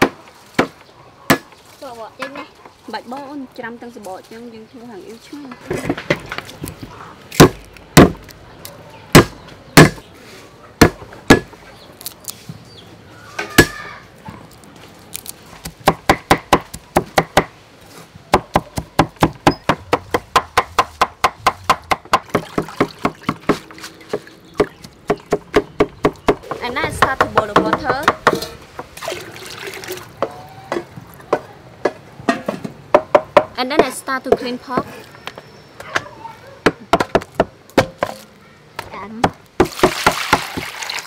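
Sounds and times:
cleaver chopping on wooden block: 9.2 - 10.0, 10.8 - 11.6, 18.3 - 28.5.

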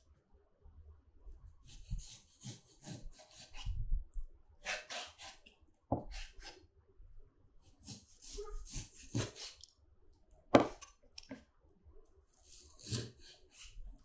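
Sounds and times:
knife slicing meat: 1.6 - 3.8, 4.6 - 6.6, 7.8 - 9.7, 12.3 - 14.0.

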